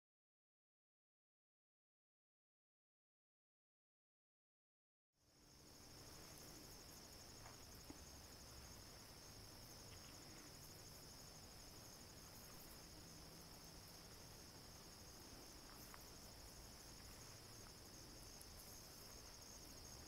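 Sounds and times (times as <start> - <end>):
cricket chorus trilling: 5.2 - 20.0.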